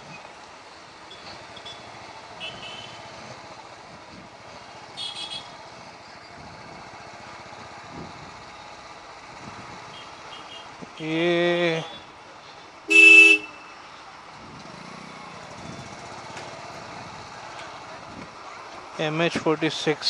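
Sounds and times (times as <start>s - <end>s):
street traffic: 0.0s - 20.0s
vehicle horn beeps: 1.1s - 3.0s, 5.0s - 5.6s, 12.9s - 13.8s
motorcycle engine riding: 14.0s - 20.0s.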